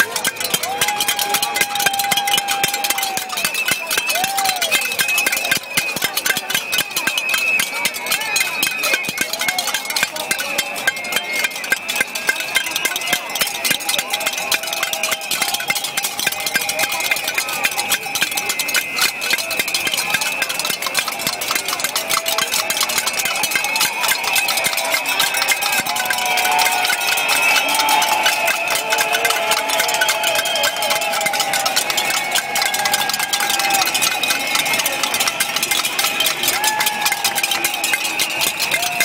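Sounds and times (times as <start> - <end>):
crowd voices: 0.0 - 39.0
whistling: 3.4 - 9.8, 22.6 - 35.4.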